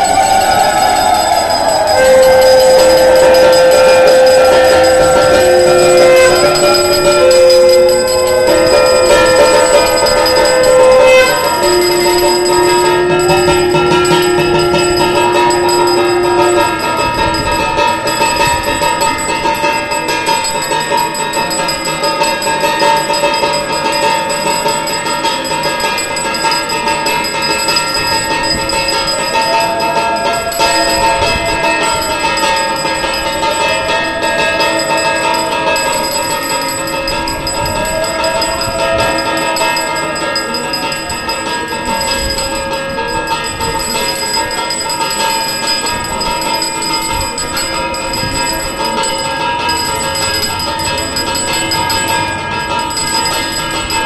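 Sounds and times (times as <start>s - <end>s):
slow rising and falling tones: 0.0s - 20.0s
steady held tone: 0.0s - 54.0s
temple bells ringing rapidly: 0.0s - 54.0s.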